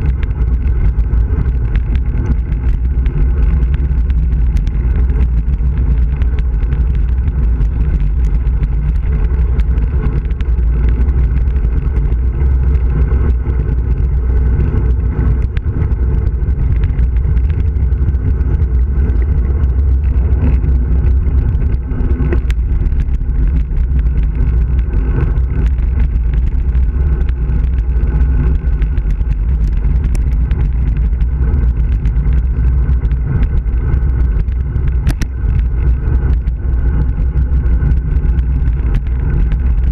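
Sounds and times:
tyre noise on asphalt: 0:00.0 - 0:39.9
wind buffeting microphone: 0:00.0 - 0:39.9
faint clicks: 0:31.8 - 0:39.9.

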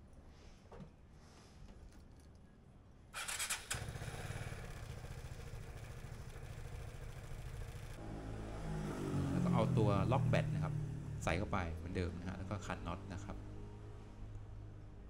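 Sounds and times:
electric starter whirring: 0:03.2 - 0:08.1
scooter engine idling: 0:03.2 - 0:09.0.

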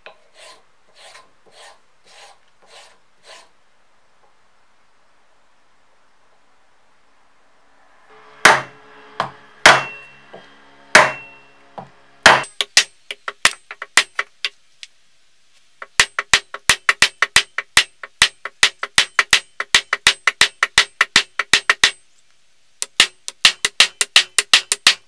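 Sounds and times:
hammer blows on steel ring: 0:08.1 - 0:12.6.

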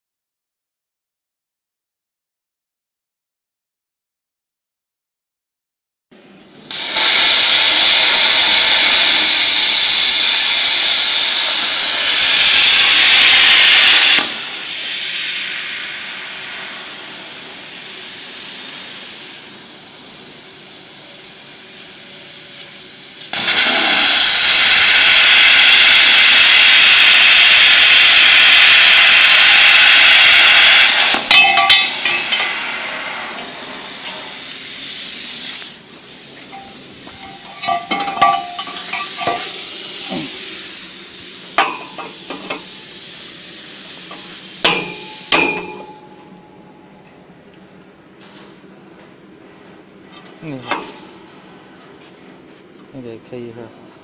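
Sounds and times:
plasma torch hissing: 0:06.6 - 0:46.1.

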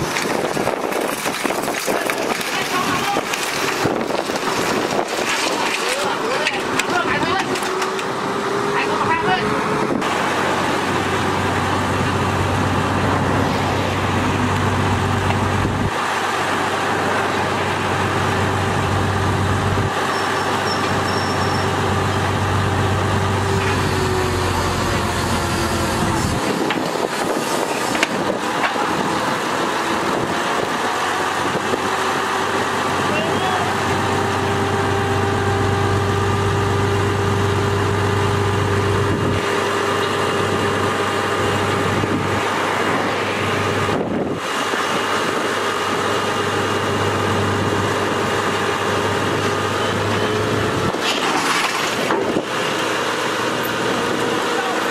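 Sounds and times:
crane engine running: 0:00.0 - 0:54.9
people's voices: 0:01.8 - 0:03.5, 0:05.3 - 0:09.8, 0:54.2 - 0:54.9.

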